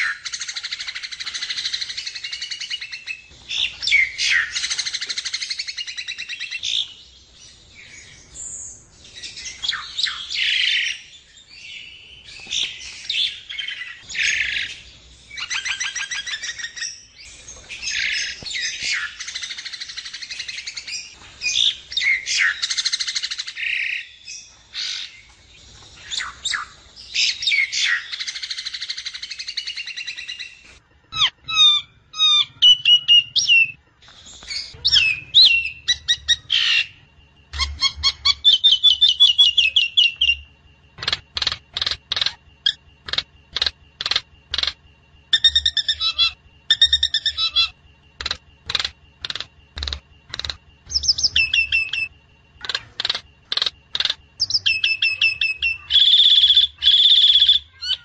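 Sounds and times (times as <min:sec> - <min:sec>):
bird squawks and chattering: 0:34.6 - 0:40.4, 0:41.0 - 0:58.0
bird whistled notes: 0:50.9 - 0:52.1, 0:54.4 - 0:58.0.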